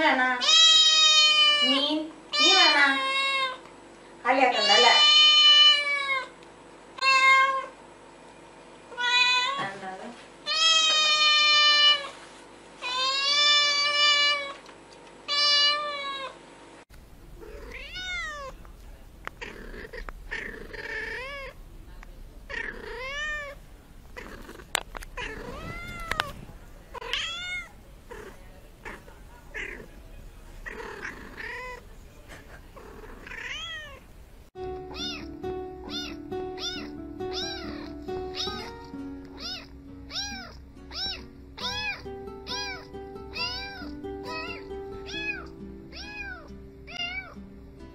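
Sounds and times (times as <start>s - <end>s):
kitten meowing: 7.0s - 7.7s, 10.5s - 12.1s, 15.3s - 16.3s, 17.4s - 18.6s, 19.4s - 21.6s, 22.5s - 23.6s, 24.2s - 26.4s, 27.0s - 29.9s, 30.6s - 31.8s, 33.0s - 34.0s, 34.8s - 47.4s.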